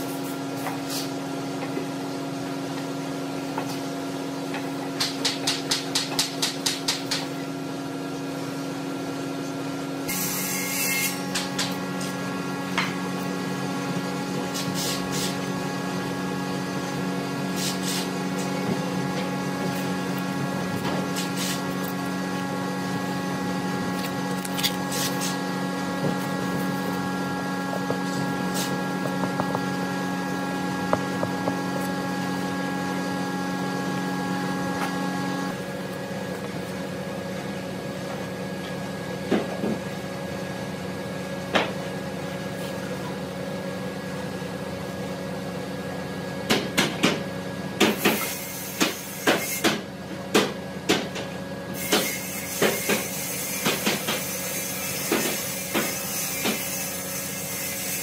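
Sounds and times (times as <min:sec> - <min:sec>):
machine hum: 0:07.3 - 0:42.4.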